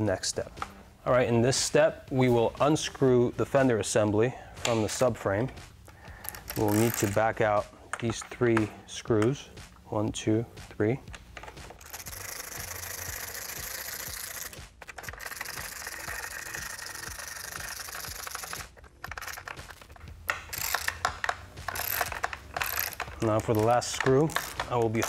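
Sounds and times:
ratchet clicking: 6.2s - 7.2s, 11.8s - 25.0s.

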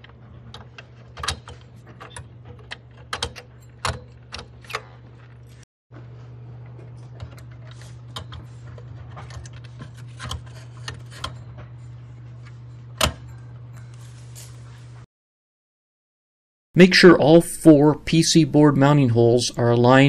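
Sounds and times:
steady low hum: 0.0s - 15.1s.

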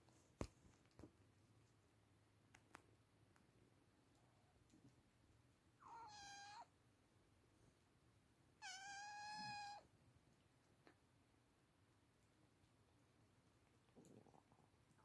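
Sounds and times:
kitten meowing: 5.8s - 6.7s, 8.6s - 9.9s.

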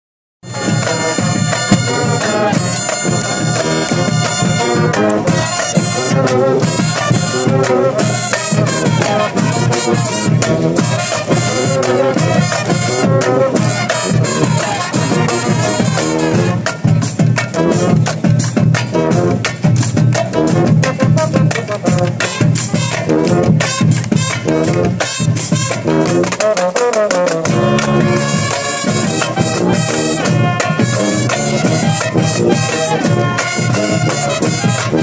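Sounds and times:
brass marching band playing: 0.4s - 35.0s
steady drum beat: 0.4s - 35.0s.

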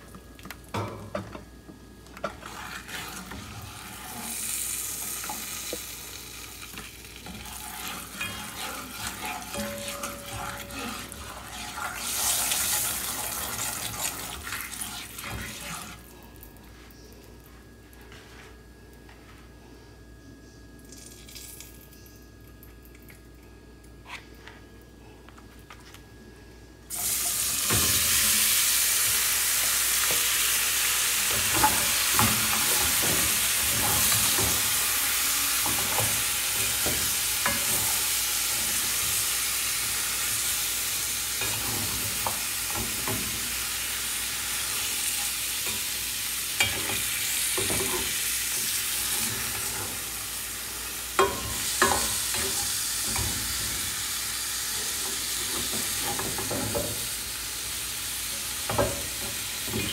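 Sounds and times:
food sizzling in hot oil: 2.4s - 16.0s, 26.9s - 59.9s.

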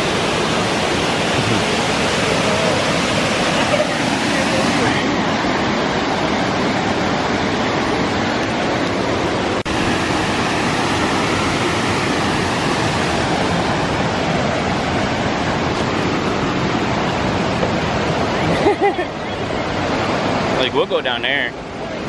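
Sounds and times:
rushing waterfall: 0.0s - 22.0s.

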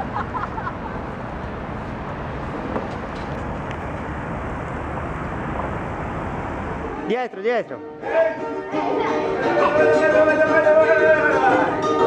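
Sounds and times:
city traffic rumble: 0.0s - 8.3s.

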